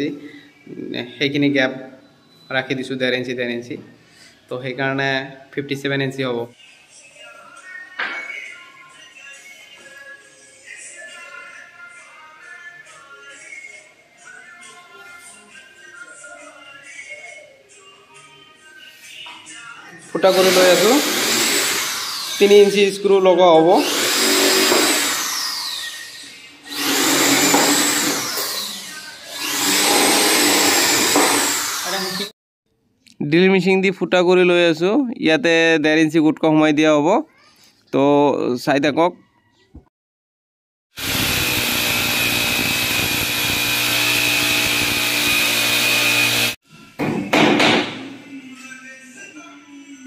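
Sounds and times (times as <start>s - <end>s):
electric drill boring into wood: 20.2s - 22.8s, 23.8s - 32.3s, 41.0s - 46.6s.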